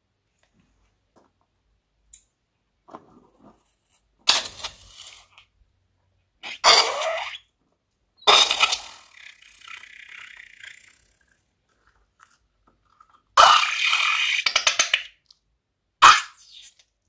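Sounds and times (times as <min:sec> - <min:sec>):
slime squirting from balloon: 0:06.4 - 0:07.5, 0:08.2 - 0:11.2, 0:13.4 - 0:15.2, 0:16.0 - 0:17.0.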